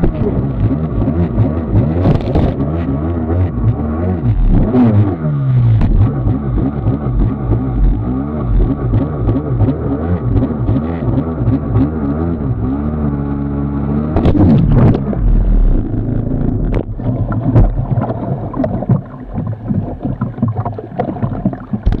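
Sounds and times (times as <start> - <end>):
jet ski engine running: 0.0 - 22.0
loud splash: 14.1 - 15.5, 16.6 - 22.0.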